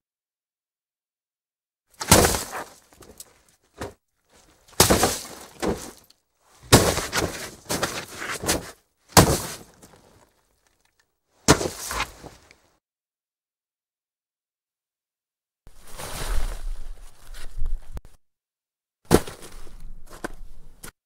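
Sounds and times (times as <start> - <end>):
body falling into snow: 2.0 - 3.2, 3.8 - 10.2, 11.4 - 12.4, 15.7 - 18.0.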